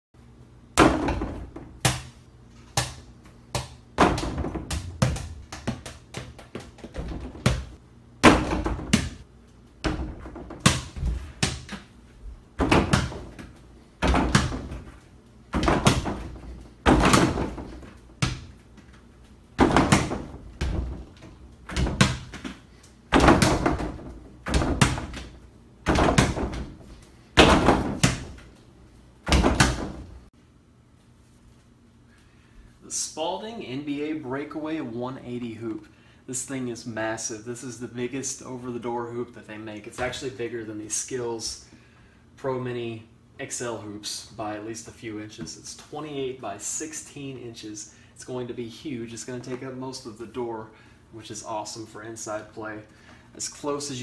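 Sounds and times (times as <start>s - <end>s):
ball thumping backboard and rim: 0.8s - 2.1s, 2.8s - 9.2s, 9.8s - 11.8s, 12.6s - 18.6s, 19.6s - 28.5s, 29.2s - 30.2s
door shaking: 6.8s - 7.6s.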